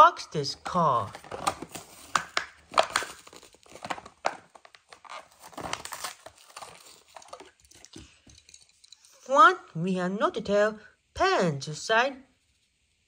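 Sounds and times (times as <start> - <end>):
plastic blister crinkling: 0.6 - 8.0
cardboard ripping: 1.1 - 7.6.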